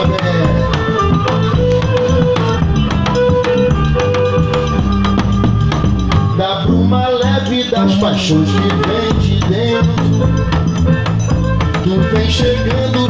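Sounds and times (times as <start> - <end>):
bass guitar: 0.0 - 13.0
fiddle melody: 0.0 - 13.0
steady drum beat: 0.0 - 13.0.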